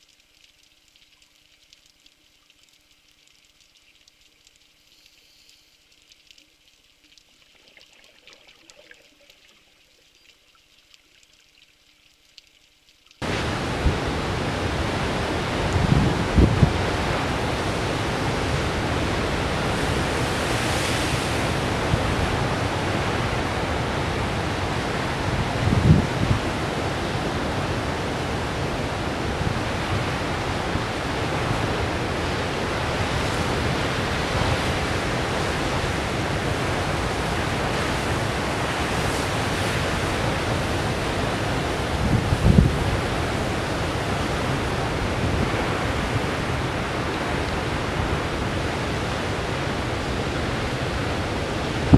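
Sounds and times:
ocean surf breaking: 13.2s - 51.9s.

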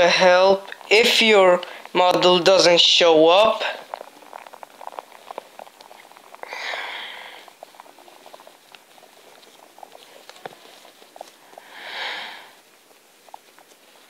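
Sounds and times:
breath close to microphone: 1.6s - 2.0s, 6.4s - 7.6s, 11.5s - 12.6s.

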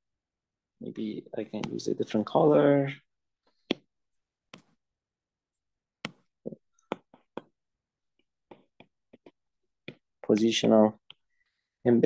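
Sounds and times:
stylus tapping glass screen: 3.5s - 4.8s, 6.0s - 11.4s.

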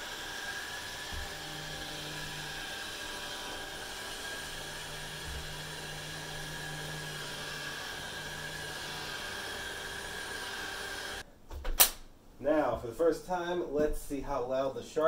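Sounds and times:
robot vacuum whirring: 0.0s - 11.2s.

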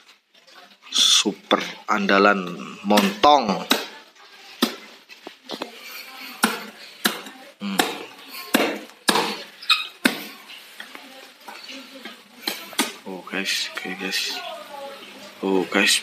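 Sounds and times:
knife knocking and cracking husk: 6.4s - 10.3s.

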